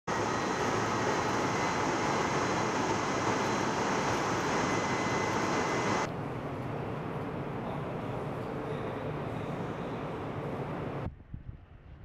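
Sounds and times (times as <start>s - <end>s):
steady machinery rush: 0.1s - 6.1s
faint high whine: 0.1s - 11.1s.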